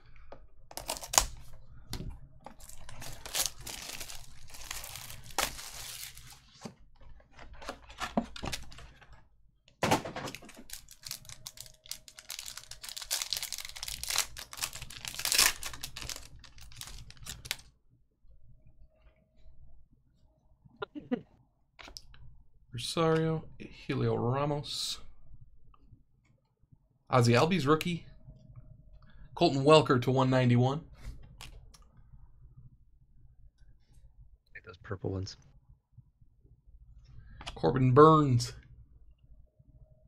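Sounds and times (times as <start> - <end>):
foil wrappers crinkling: 2.5 - 6.5, 10.4 - 17.7.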